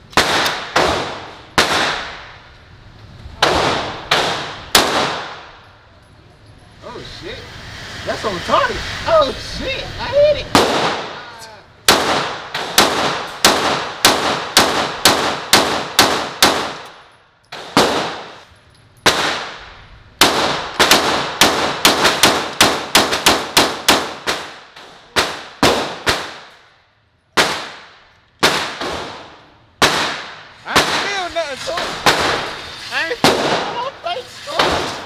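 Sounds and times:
pistol shots with echo: 0.1s - 2.2s, 3.4s - 5.5s, 11.9s - 18.4s, 19.0s - 26.6s, 27.4s - 31.2s.

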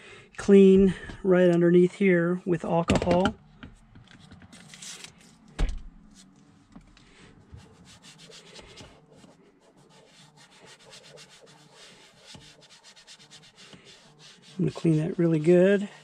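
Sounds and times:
wipe scrubbing plastic trim: 7.4s - 16.0s.

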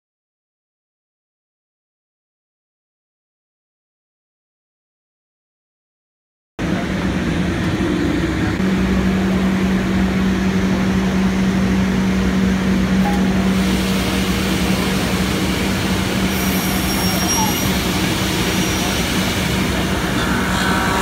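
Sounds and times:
steady hum: 6.6s - 21.0s.

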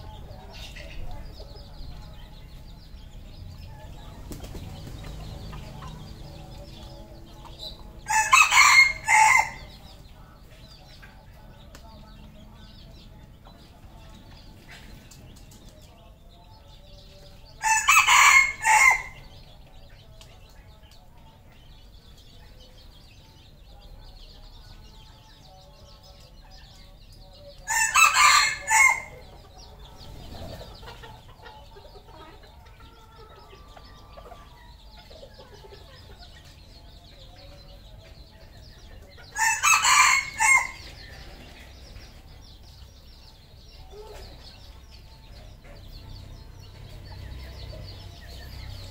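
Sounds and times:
rooster crowing: 8.0s - 9.8s, 17.6s - 19.2s, 27.7s - 29.2s, 39.4s - 40.8s.

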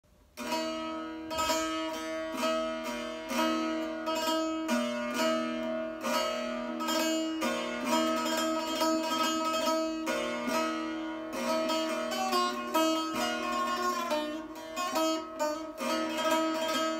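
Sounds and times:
plucked long-necked lute: 0.4s - 16.9s.

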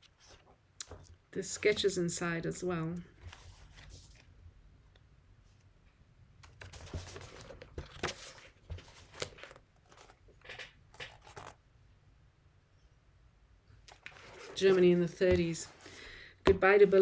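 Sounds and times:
book pages rustling: 0.0s - 1.8s, 3.1s - 4.3s, 6.5s - 11.6s, 13.9s - 16.0s.

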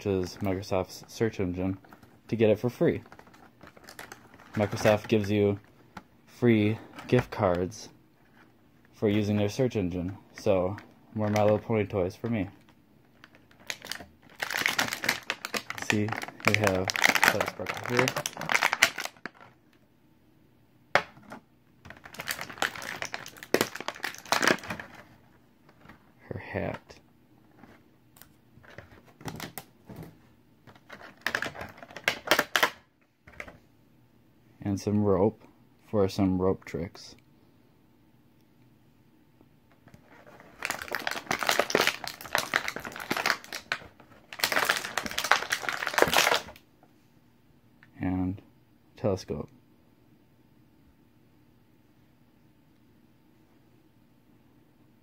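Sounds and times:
plastic packaging crackling: 2.8s - 5.6s, 13.1s - 19.6s, 21.8s - 25.9s, 30.7s - 32.8s, 40.0s - 46.6s.

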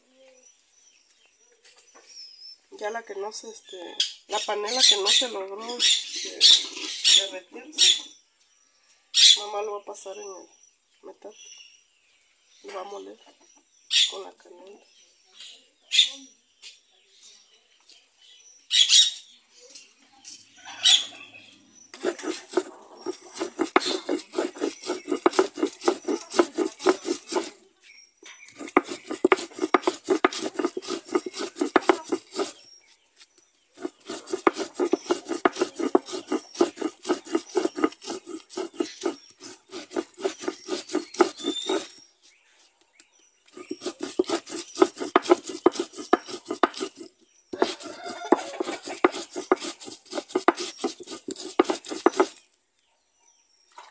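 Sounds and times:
stone grinding on stone: 6.1s - 7.3s, 22.0s - 27.6s, 28.5s - 32.6s, 33.8s - 42.0s, 43.5s - 52.4s.

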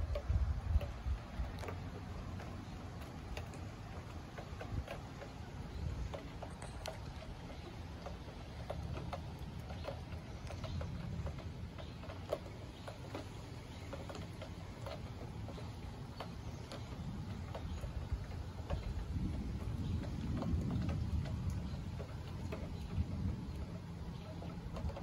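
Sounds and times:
steady low rumble: 0.0s - 12.8s
raindrops pattering: 0.0s - 25.0s.

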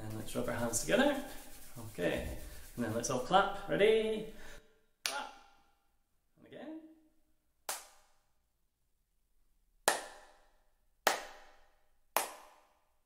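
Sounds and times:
hand claps with room echo: 5.0s - 5.7s, 7.6s - 8.3s, 9.8s - 13.0s.

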